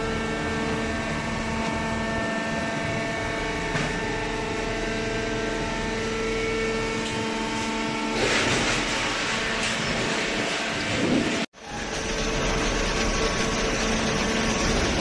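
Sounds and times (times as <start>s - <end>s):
hydraulic baler motor humming: 0.0s - 15.0s
faint machine whine: 9.4s - 15.0s.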